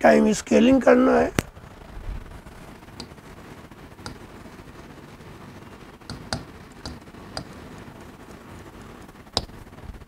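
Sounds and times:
marker tapping on blackboard: 4.0s - 4.2s, 6.1s - 7.6s, 9.4s - 9.6s.

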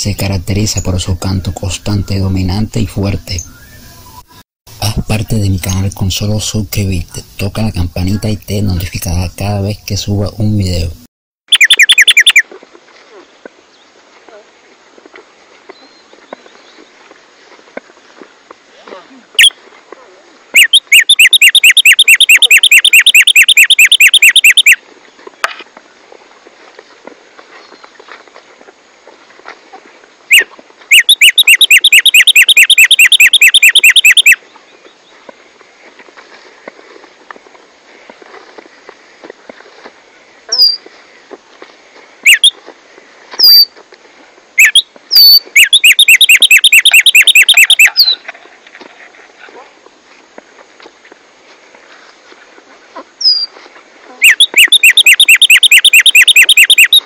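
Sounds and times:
bird whistling song: 3.4s - 4.3s, 11.5s - 12.4s, 20.6s - 24.8s, 30.9s - 34.4s, 42.3s - 42.5s, 44.6s - 48.2s, 54.2s - 57.0s
sparrow singing: 11.5s - 12.4s, 30.9s - 34.8s, 44.6s - 48.2s, 53.2s - 53.5s, 54.2s - 57.0s.

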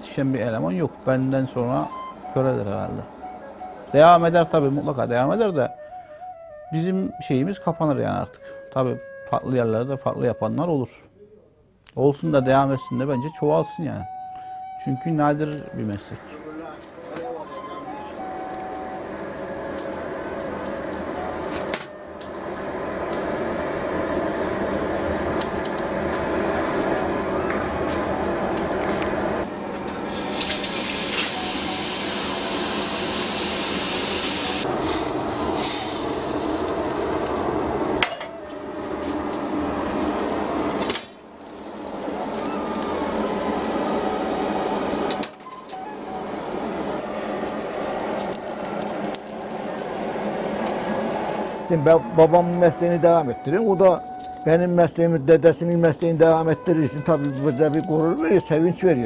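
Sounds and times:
fire crackles: 17.9s - 51.2s
forge fire rushing: 18.3s - 45.3s, 46.7s - 53.5s.

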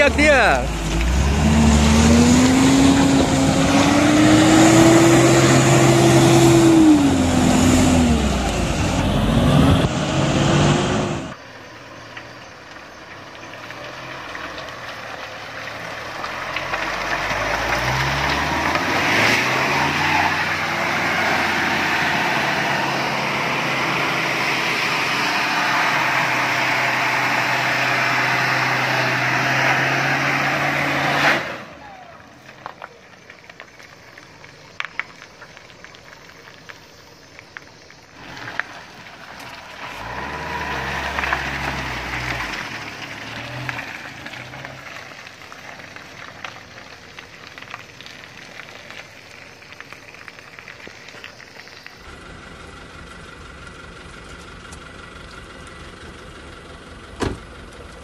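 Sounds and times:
pickup engine revving: 0.0s - 11.4s, 13.4s - 32.8s, 38.2s - 46.6s.

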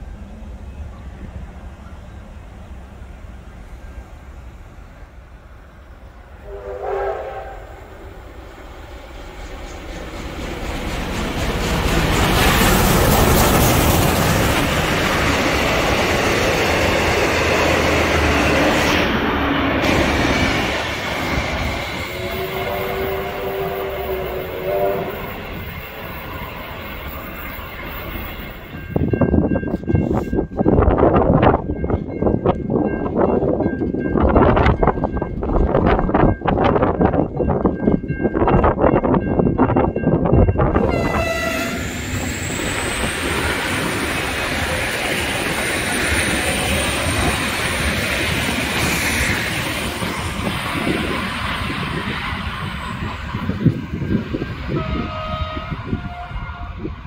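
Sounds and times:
train rumble and clatter: 0.0s - 57.0s
train chime whistle: 6.4s - 7.9s, 22.0s - 26.3s, 40.8s - 43.1s, 52.0s - 56.9s.

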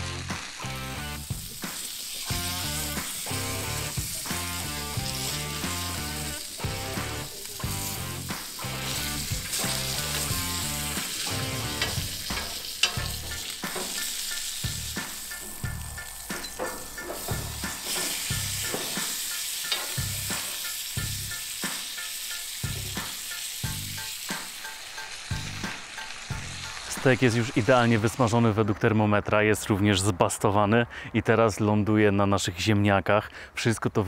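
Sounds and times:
background music with steady beat: 0.0s - 27.8s
steak sizzling in butter: 0.0s - 28.3s
metal utensil knocking: 11.6s - 14.3s, 15.3s - 19.1s, 19.7s - 20.1s.

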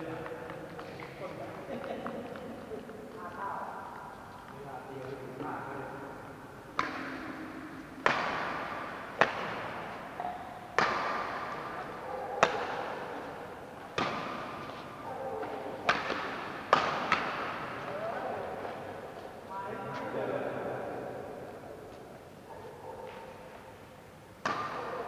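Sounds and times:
racket smacking shuttlecock: 6.7s - 19.4s, 24.4s - 25.0s.

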